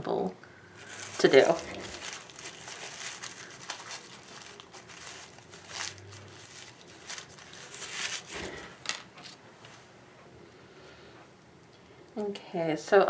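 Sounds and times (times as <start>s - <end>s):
rustling and crinkling on tabletop: 0.7s - 9.9s.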